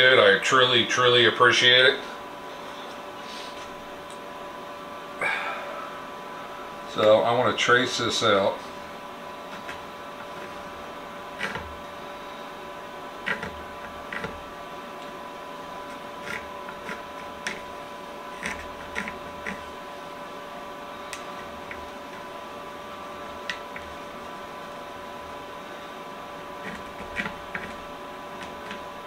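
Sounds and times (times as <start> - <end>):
steady hum: 0.0 - 29.0
pencil scratching and tapping: 9.5 - 10.6, 11.4 - 11.8, 13.2 - 14.4, 15.9 - 17.7, 18.3 - 19.7, 26.6 - 28.9.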